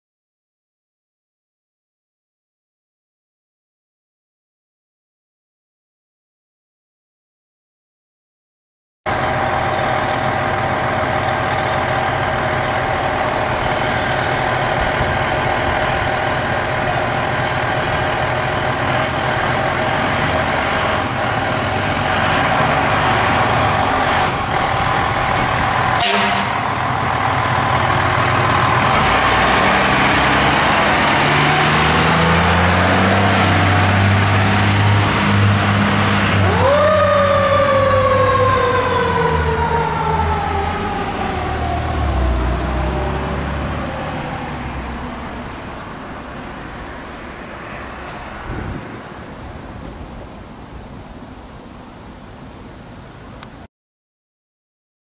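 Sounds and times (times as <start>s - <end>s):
fire engine diesel engine running: 9.1s - 53.6s.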